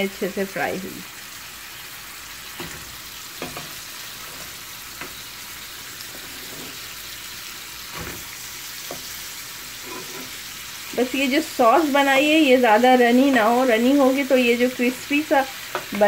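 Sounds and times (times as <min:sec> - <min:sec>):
wings sizzling in hot oil: 0:00.0 - 0:16.0
metal spoon knocking on pans: 0:02.6 - 0:03.8.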